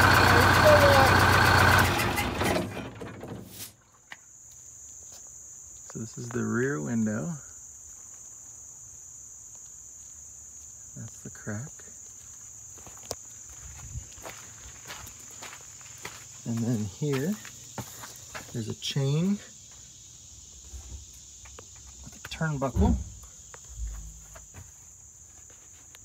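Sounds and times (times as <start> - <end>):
bus diesel engine running: 0.0 - 3.6
insects droning: 0.0 - 26.0.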